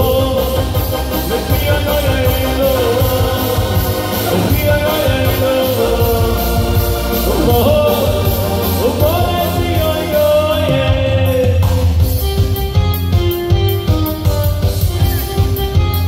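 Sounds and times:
man singing into microphone: 0.0s - 12.0s
electronic keyboard with bass and beat: 0.0s - 16.0s.

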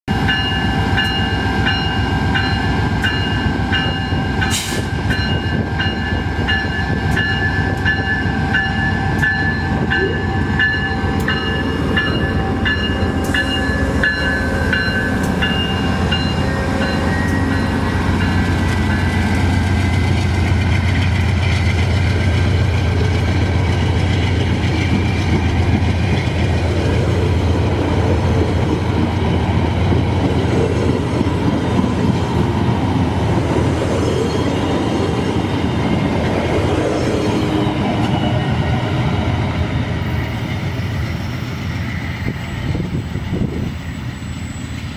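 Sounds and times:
locomotive bell ringing: 0.1s - 21.5s
diesel locomotive pulling train: 0.1s - 44.9s
train cars rumbling: 0.1s - 44.9s.

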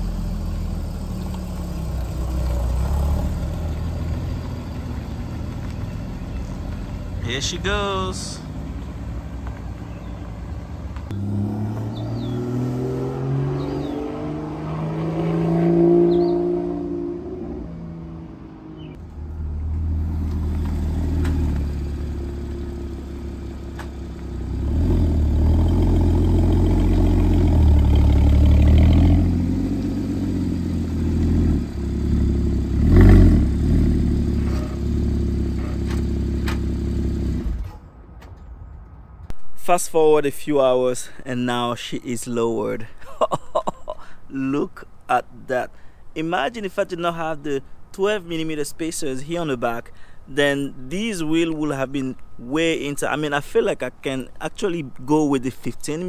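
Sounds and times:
car engine revving: 0.0s - 7.2s, 11.1s - 37.8s.

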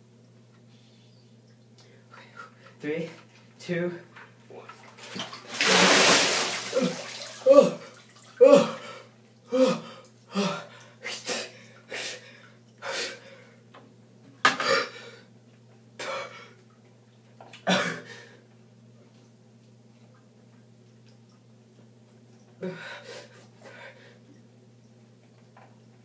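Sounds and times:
ice water splashing: 5.1s - 7.4s
person gasping and yelping: 6.8s - 12.2s.

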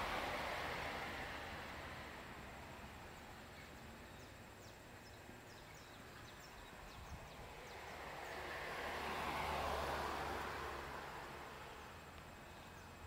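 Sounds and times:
car passing: 0.0s - 4.6s, 5.5s - 13.0s
small birds chirping: 3.1s - 8.5s, 11.7s - 13.0s.

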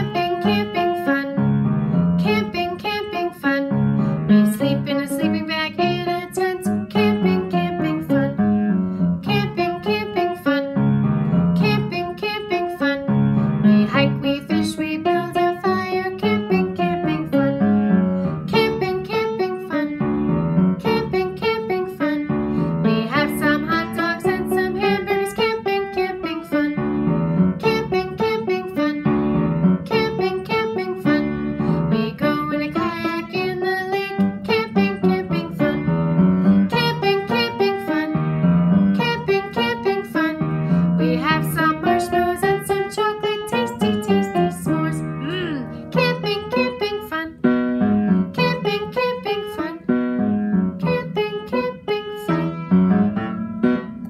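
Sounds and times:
piano chords: 0.0s - 54.0s
person singing: 40.9s - 47.4s.

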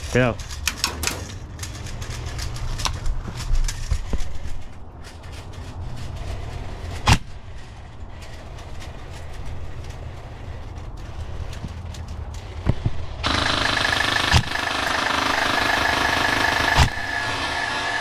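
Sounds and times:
gear handling clicks and knocks: 0.0s - 13.0s
airsoft rifle shot: 13.2s - 15.3s.

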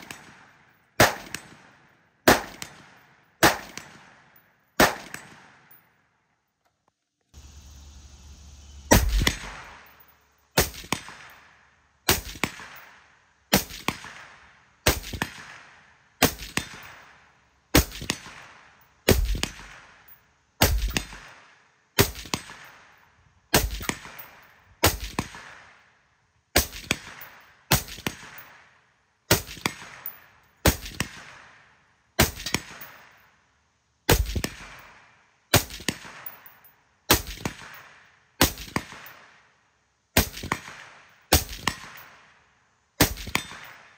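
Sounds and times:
suppressed rifle shots: 0.0s - 5.8s, 8.9s - 17.2s, 17.8s - 20.0s, 20.6s - 25.7s, 32.2s - 33.2s, 34.1s - 39.4s, 40.2s - 42.3s, 43.0s - 43.9s.

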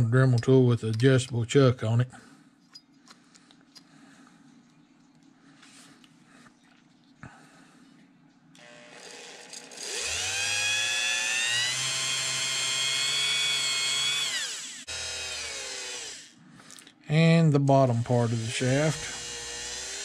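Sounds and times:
rotary tool whining: 8.6s - 16.4s, 17.6s - 20.0s.

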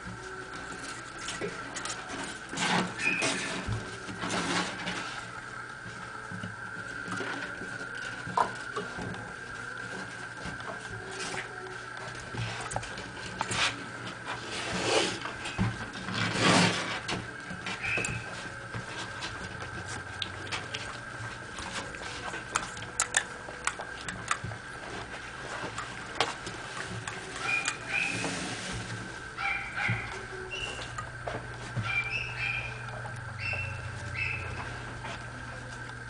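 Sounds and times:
puppy paws pattering: 17.0s - 36.0s.

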